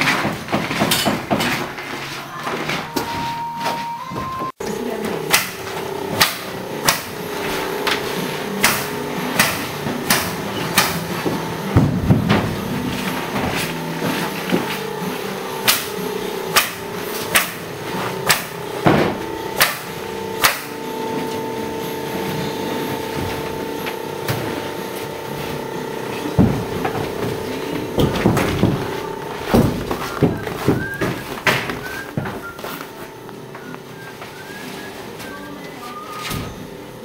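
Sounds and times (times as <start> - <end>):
steady hum: 0.0 - 37.0
hammer striking wood: 15.6 - 17.6, 18.2 - 20.8.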